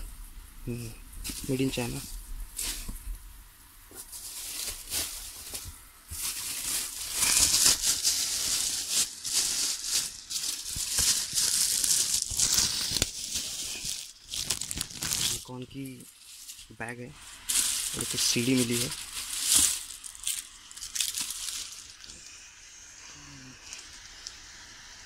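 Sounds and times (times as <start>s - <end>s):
plastic wrapping crinkling: 3.9s - 22.2s.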